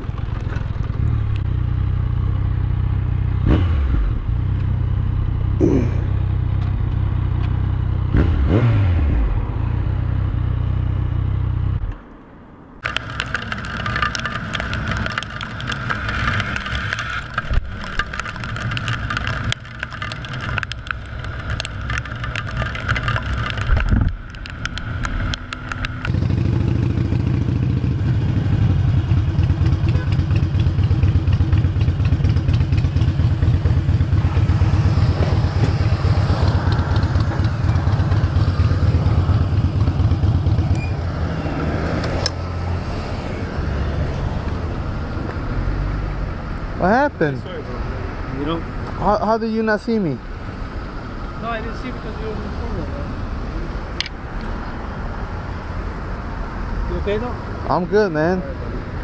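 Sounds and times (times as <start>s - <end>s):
motorcycle engine revving: 0.0s - 12.0s, 12.8s - 48.6s
motorcycle engine running steadily: 0.0s - 12.0s, 12.8s - 41.1s
wind and road noise: 0.0s - 59.0s
crackles: 12.8s - 26.8s.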